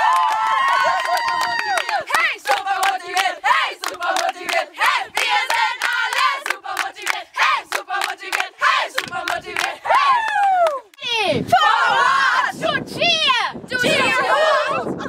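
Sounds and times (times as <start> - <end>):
women shouting and chanting: 9.7 - 15.0.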